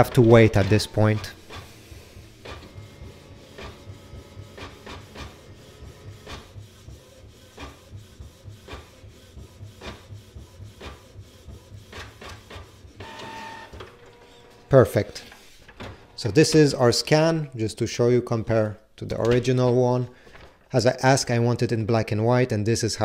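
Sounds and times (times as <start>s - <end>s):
inkjet printer printing: 0.0s - 16.8s
printer low hum: 0.0s - 17.0s.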